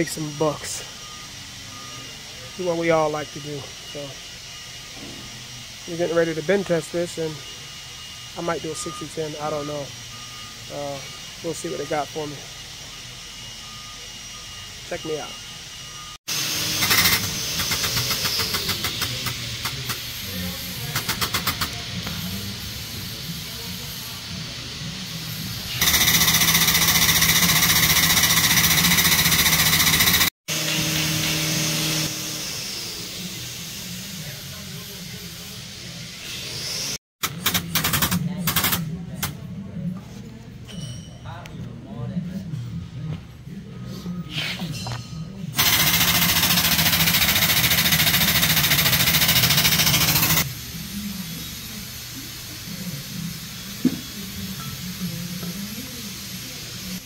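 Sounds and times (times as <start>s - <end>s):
hydraulic machine buzzing hiss: 0.0s - 39.3s, 45.6s - 57.0s
hydraulic jack pump chattering: 16.7s - 20.0s, 20.8s - 21.8s, 25.8s - 30.3s, 45.6s - 50.5s.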